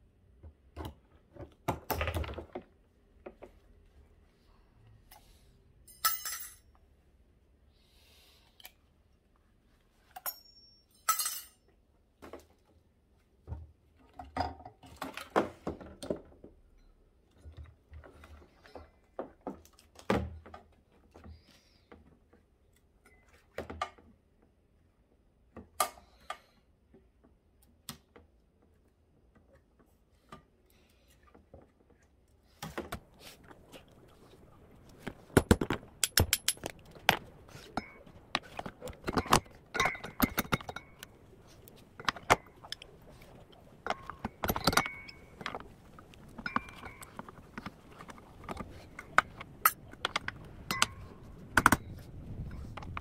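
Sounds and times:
tools clinking on metal: 5.9s - 6.7s, 10.2s - 11.7s, 35.0s - 42.9s, 43.8s - 45.6s.

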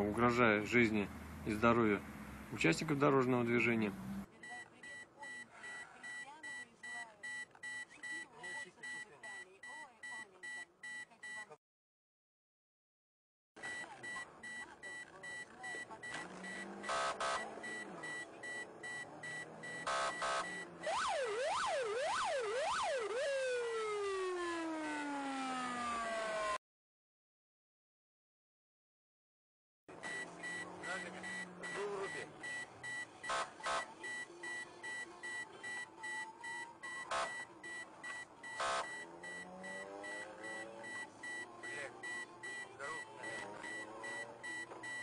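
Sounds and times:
rapid high-pitched beeping: 13.7s - 22.4s, 30.1s - 45.0s
police siren wailing: 16.1s - 26.6s, 30.0s - 45.0s
harsh siren blasts: 19.5s - 26.6s, 38.6s - 41.4s.

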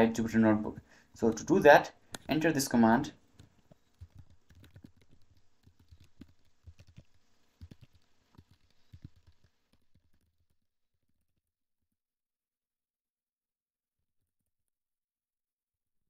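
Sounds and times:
computer keyboard typing: 3.3s - 10.3s.

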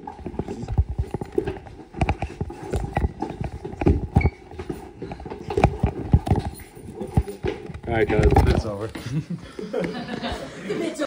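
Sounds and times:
knocks and thumps on hard floor: 0.0s - 8.7s.

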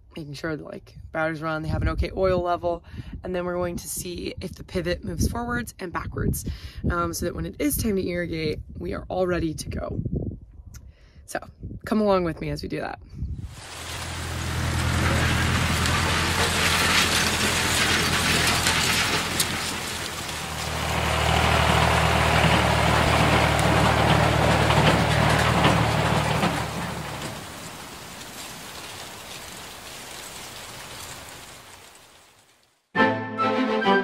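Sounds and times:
farm machinery engines running: 13.5s - 31.8s
mechanical clatter: 13.8s - 28.3s.

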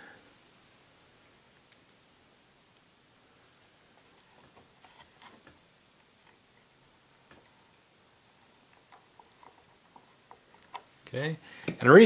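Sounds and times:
small clicks and taps of screw: 8.7s - 11.0s.

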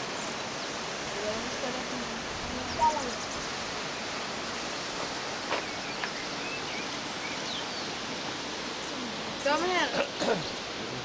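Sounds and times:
stream water rushing: 0.0s - 11.0s
faint bird chirps: 5.6s - 8.0s.

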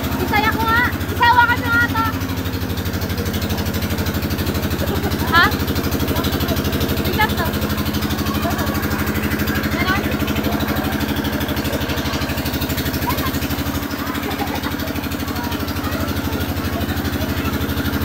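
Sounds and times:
faint voices: 0.0s - 18.0s
small engine idling: 0.0s - 18.0s.

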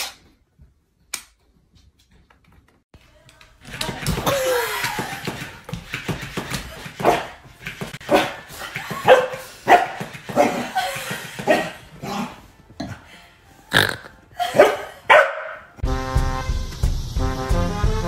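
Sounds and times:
dog barking: 9.0s - 10.7s, 14.4s - 15.7s.

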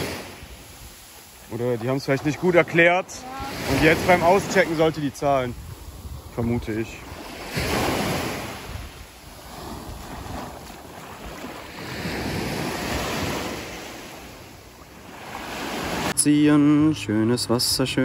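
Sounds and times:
sea waves on beach: 0.0s - 16.2s
wind buffeting microphone: 3.2s - 13.8s.

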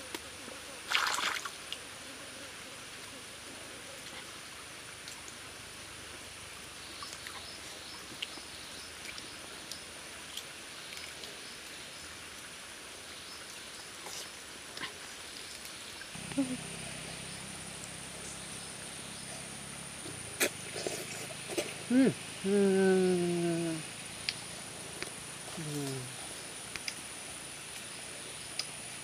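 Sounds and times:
stream ambience: 0.8s - 1.9s, 3.2s - 29.0s
low steady hum: 16.1s - 29.0s
high thin whine: 16.2s - 27.2s.

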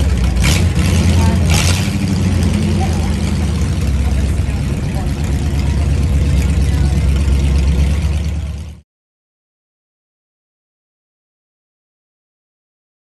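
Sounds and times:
car engine idling: 0.0s - 8.8s.

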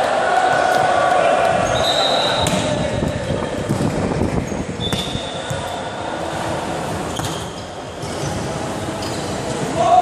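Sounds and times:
echoing hall rumble: 0.0s - 7.1s
sneaker squeaks: 1.6s - 2.8s, 4.4s - 5.8s, 7.0s - 9.8s.

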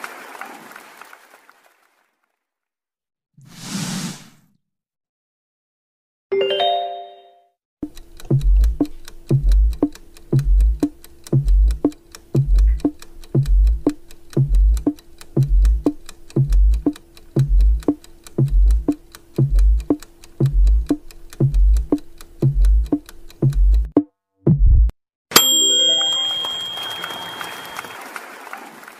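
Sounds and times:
countdown timer music: 6.3s - 24.1s
brief chime: 6.4s - 7.5s, 25.3s - 28.2s.

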